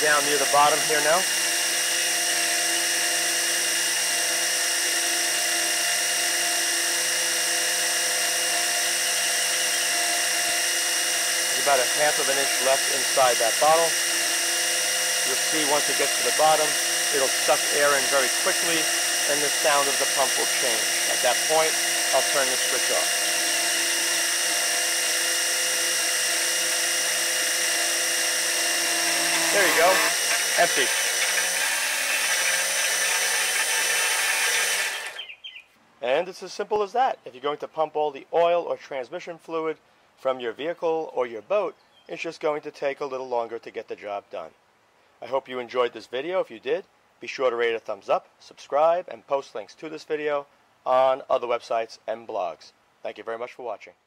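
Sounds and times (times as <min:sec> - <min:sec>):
electric pump running: 0:00.0 - 0:35.3.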